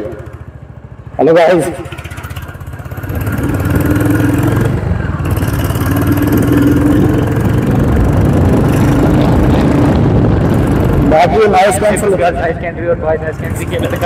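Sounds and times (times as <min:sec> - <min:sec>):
motorcycle engine running: 0:00.0 - 0:14.0
wind noise: 0:06.2 - 0:12.7.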